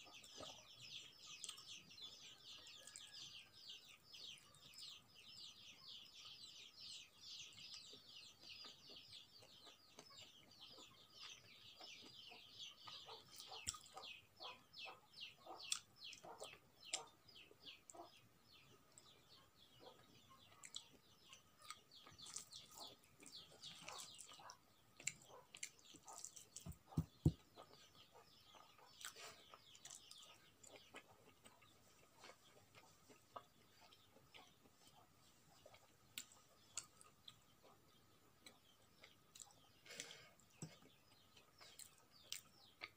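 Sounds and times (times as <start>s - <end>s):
wet chewing clicks: 0.1s - 1.8s, 11.2s - 14.6s, 15.5s - 17.2s, 19.9s - 37.8s, 38.4s - 42.9s.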